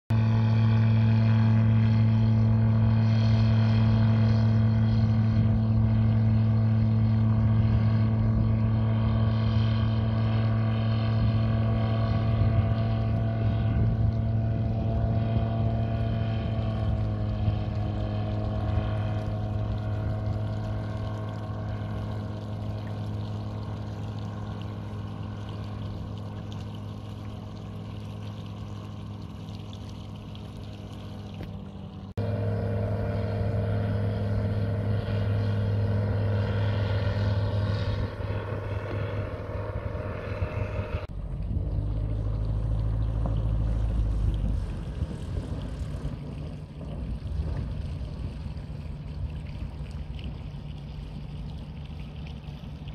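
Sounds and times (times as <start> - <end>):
propeller plane engine drone: 0.1 - 52.9.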